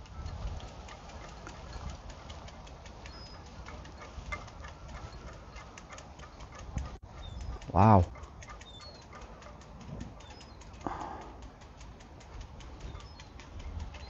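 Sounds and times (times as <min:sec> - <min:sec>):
footsteps on a muddy path: 0:00.0 - 0:07.0.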